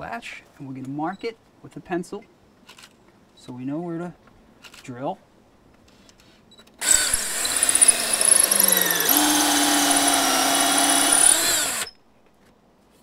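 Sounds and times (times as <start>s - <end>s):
cordless drill drilling wood: 6.8s - 11.9s.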